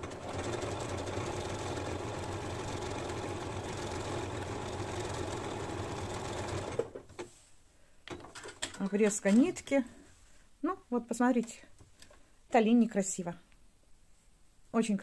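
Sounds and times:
sewing machine stitching: 0.0 - 7.0.

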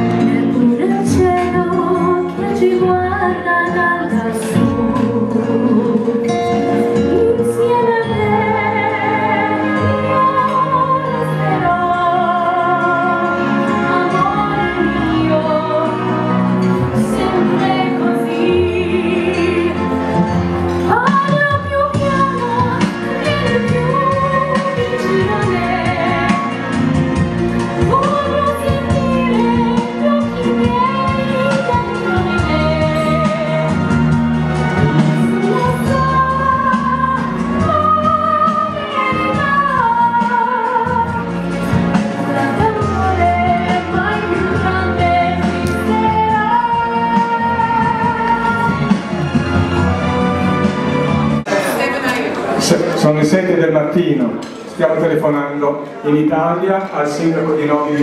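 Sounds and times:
young woman singing with vibrato: 0.0 - 26.8, 27.7 - 34.2, 35.2 - 41.4, 42.2 - 48.9
instrumental backing music: 0.0 - 58.0.

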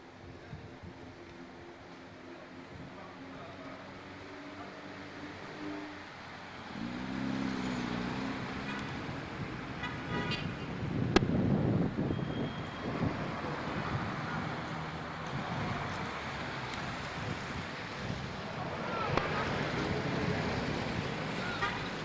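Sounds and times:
car engines passing: 0.9 - 22.0
car horn toot: 9.8 - 10.5.

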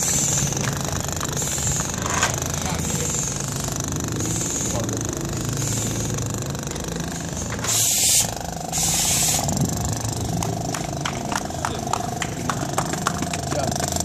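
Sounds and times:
low hum: 0.0 - 14.0
hissing breaths through regulator: 1.4 - 6.5, 7.1 - 9.6.

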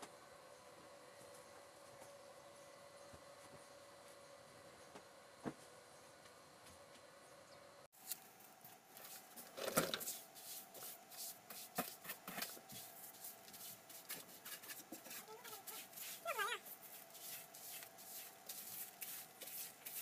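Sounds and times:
broom sweeping a floor: 8.9 - 20.0.

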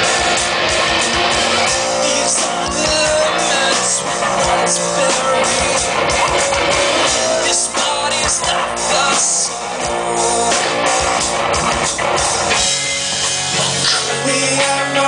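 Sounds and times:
live rock band playing: 0.0 - 15.0
male singer singing: 1.6 - 11.1, 13.9 - 15.0.

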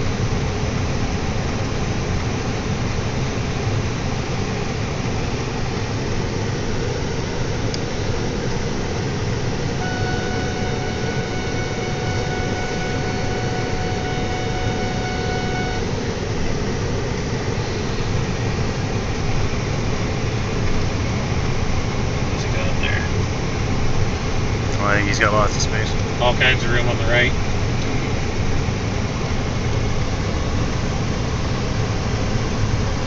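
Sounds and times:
car road and engine noise: 0.0 - 33.0
steady high tone: 9.8 - 16.0.

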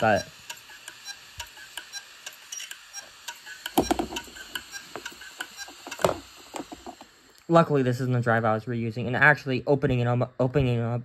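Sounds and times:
hard drive clicking: 0.2 - 7.1.

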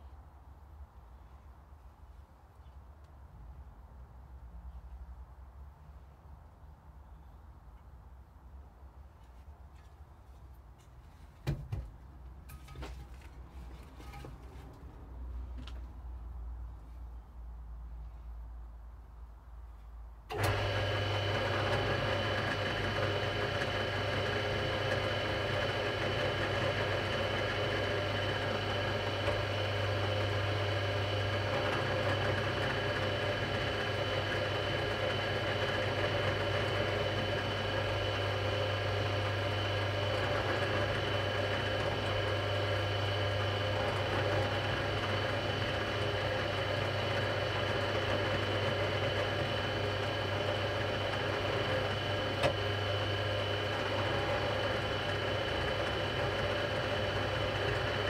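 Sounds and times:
drill press motor humming: 20.3 - 58.0
drilling into wood: 20.3 - 58.0.

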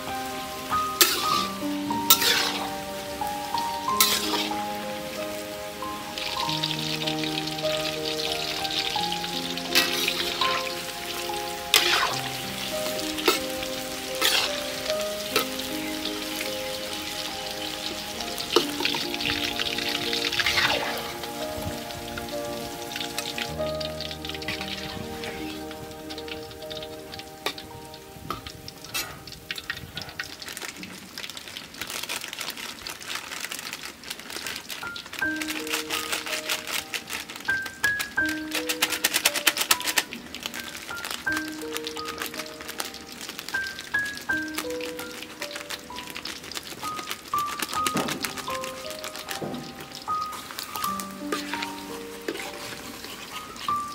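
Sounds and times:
fish deep-frying in oil: 0.0 - 53.9
metal spoon scraping a wok: 1.0 - 1.5, 2.1 - 2.7, 4.0 - 4.6, 14.2 - 14.6, 51.3 - 53.9.

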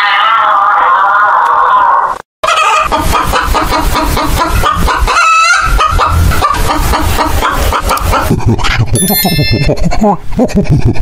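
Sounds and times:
hens clucking: 2.4 - 9.0.

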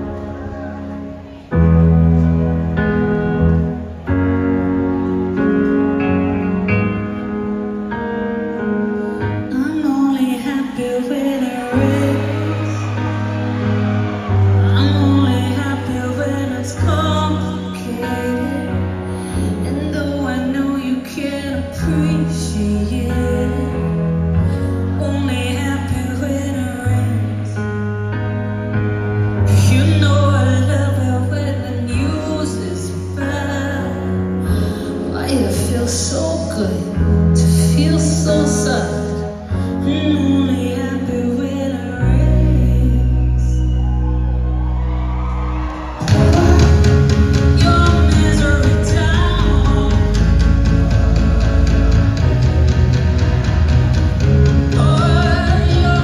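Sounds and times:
loud live rock band: 0.0 - 56.0
person singing: 9.2 - 27.7, 46.0 - 53.4, 54.1 - 56.0
bass drone: 42.1 - 56.0.

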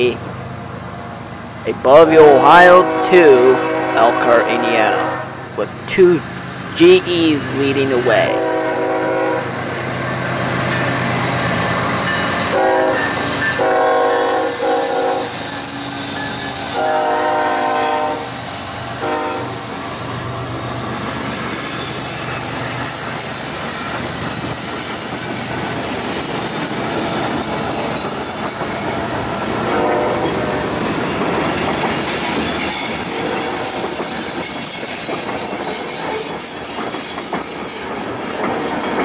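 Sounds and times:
train rumble: 0.0 - 39.0
train horn blasts: 2.1 - 5.4, 8.1 - 9.6, 12.4 - 15.5, 16.6 - 18.4, 19.0 - 19.6, 29.6 - 30.5, 33.0 - 33.8.

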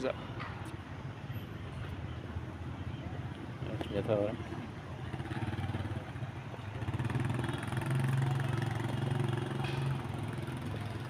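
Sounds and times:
small motorbike riding past: 5.1 - 11.0.

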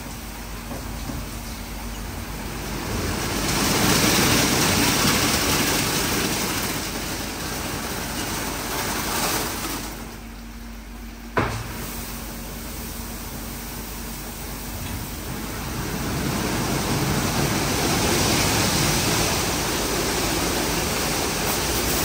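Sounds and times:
car wash water spray: 11.4 - 22.0.

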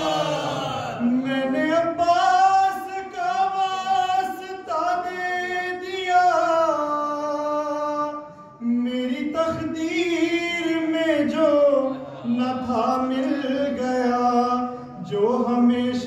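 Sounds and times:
man singing unaccompanied: 1.0 - 16.0.

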